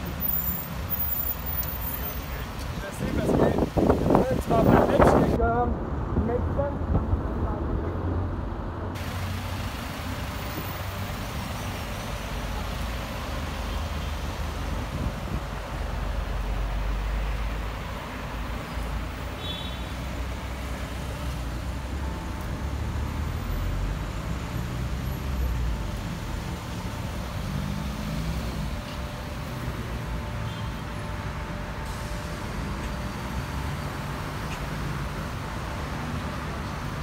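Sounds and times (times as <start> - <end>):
vehicles driving past: 0.0 - 37.0.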